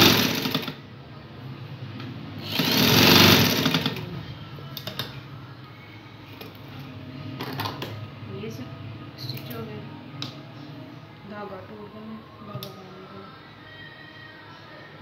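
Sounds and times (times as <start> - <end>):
sewing machine stitching: 0.0 - 0.8, 2.4 - 4.1.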